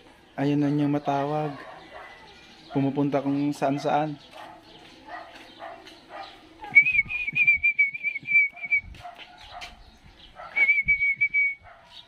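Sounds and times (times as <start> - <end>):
person whistling: 6.7 - 9.0, 10.6 - 11.6.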